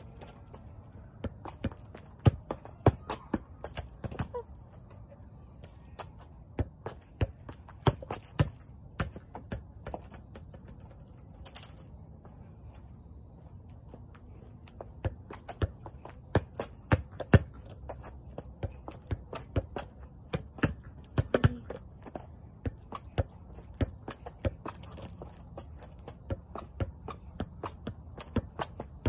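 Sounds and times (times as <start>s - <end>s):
soccer ball thumps and taps: 1.2s - 4.4s, 6.0s - 10.8s, 14.7s - 29.0s.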